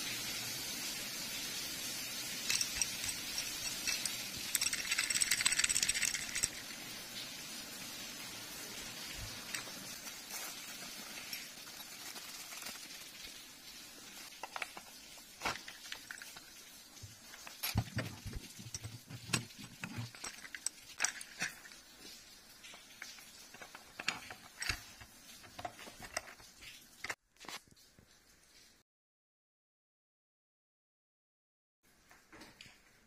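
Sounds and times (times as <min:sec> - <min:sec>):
metal parts clicking and knocking: 0:02.4 - 0:06.7, 0:14.3 - 0:21.9, 0:22.6 - 0:27.2
plastic bag crinkling: 0:02.4 - 0:06.9, 0:09.1 - 0:22.1.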